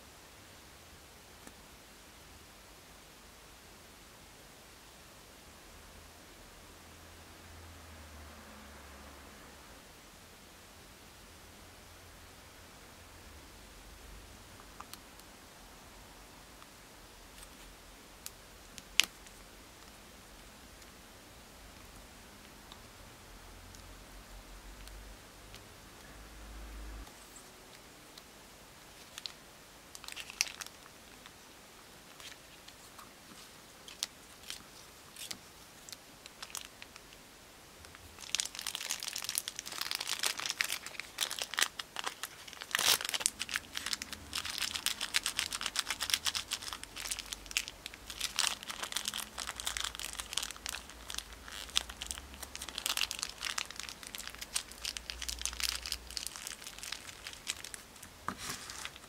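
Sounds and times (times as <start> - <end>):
plastic bag crinkling: 28.9 - 31.3, 32.1 - 36.9, 37.9 - 59.0.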